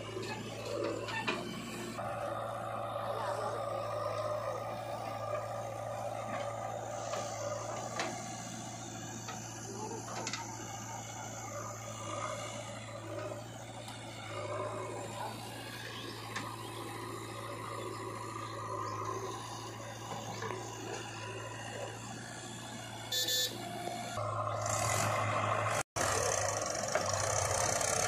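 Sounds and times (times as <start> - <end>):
diesel engine running: 0.0 - 28.0.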